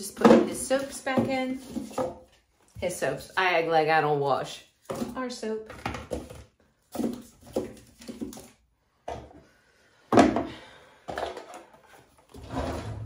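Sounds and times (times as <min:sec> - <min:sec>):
toiletries clattering in a drawer: 0:10.1 - 0:13.0.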